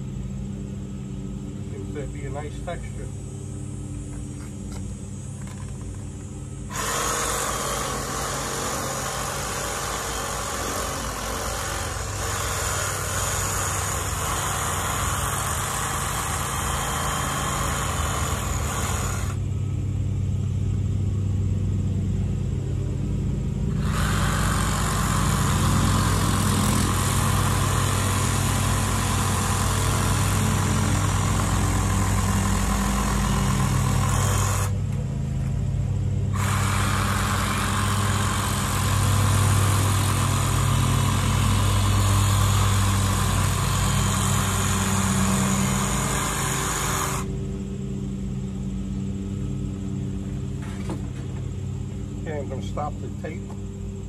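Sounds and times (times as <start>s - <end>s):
handheld saw motor hum: 0.0s - 20.0s, 23.5s - 54.0s
saw cutting foam: 6.6s - 19.4s, 23.7s - 34.9s, 36.3s - 47.4s.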